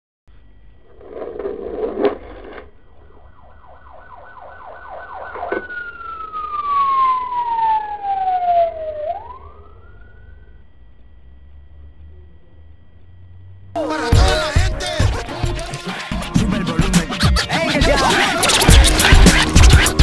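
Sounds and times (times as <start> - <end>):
falling and rising whistle: 3.4 - 10.6.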